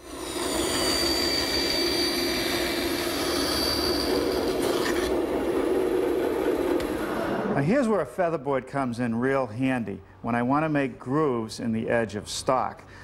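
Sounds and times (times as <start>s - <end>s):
bandsaw cutting wood: 0.0s - 6.9s
thin high whine: 0.0s - 7.9s.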